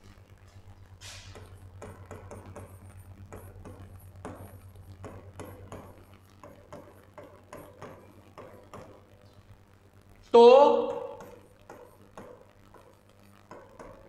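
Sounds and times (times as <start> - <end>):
faint electrical hum: 0.0 - 14.0
chalk tapping and scratching: 1.0 - 9.0.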